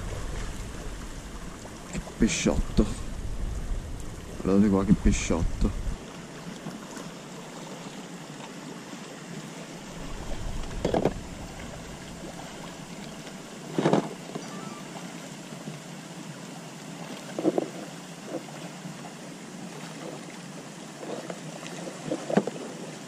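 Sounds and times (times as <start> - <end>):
rushing outdoor noise: 0.0 - 17.0.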